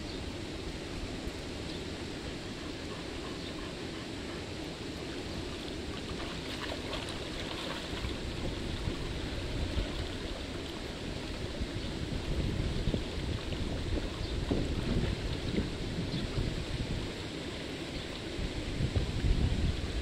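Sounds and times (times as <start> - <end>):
stream flowing: 0.0 - 20.0
wind on microphone: 5.2 - 20.0
dog splashing through water: 6.0 - 10.7.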